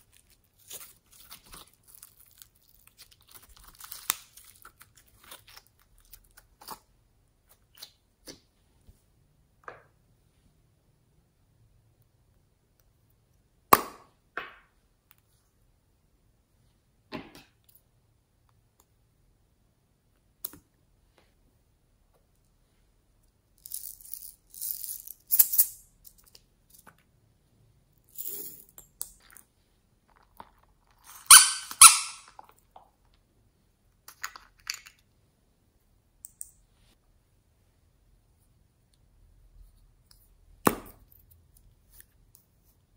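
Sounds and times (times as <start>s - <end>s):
plastic beads rattling in a jar: 23.6s - 25.8s.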